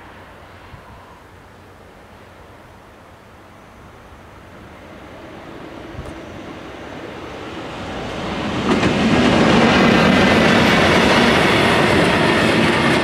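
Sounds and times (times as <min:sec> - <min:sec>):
diesel locomotive passing: 0:00.0 - 0:13.0
train wheels clattering on rails: 0:05.7 - 0:13.0.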